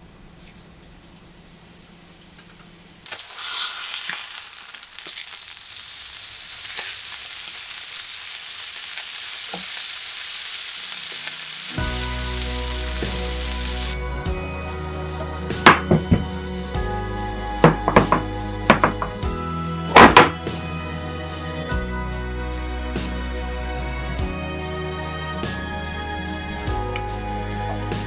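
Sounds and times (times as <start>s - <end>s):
meat sizzling in a frying pan: 3.0s - 14.0s
soft background music: 11.8s - 28.0s.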